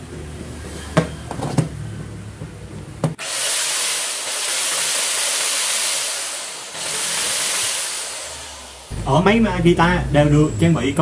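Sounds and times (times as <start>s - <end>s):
angle grinder whirring: 3.2s - 9.2s.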